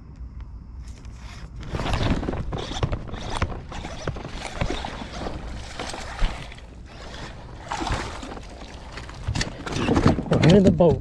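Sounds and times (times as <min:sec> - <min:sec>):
fishing rod and reel handling: 0:00.8 - 0:10.1
fish splashing in water: 0:03.5 - 0:09.7.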